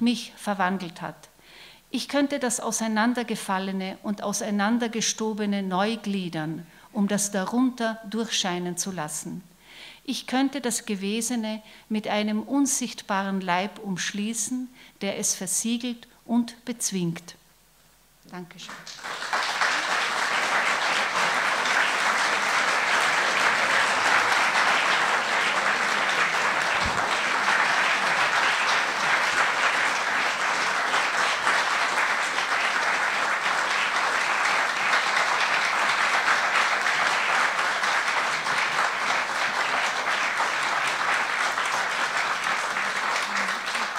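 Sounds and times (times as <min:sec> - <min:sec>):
audience applauding: 0:18.7 - 0:43.9.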